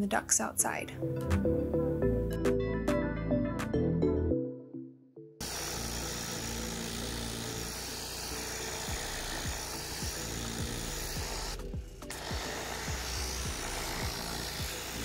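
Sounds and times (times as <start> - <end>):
pressure washer water jet hissing: 5.4 - 15.0
pump running: 5.4 - 15.0.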